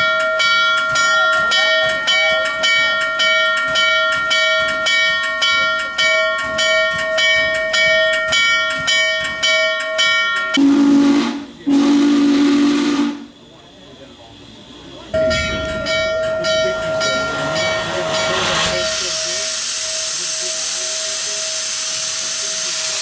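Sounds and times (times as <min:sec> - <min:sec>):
locomotive bell ringing: 0:00.0 - 0:12.0, 0:15.0 - 0:21.8
steam whistle blasts: 0:10.5 - 0:13.3.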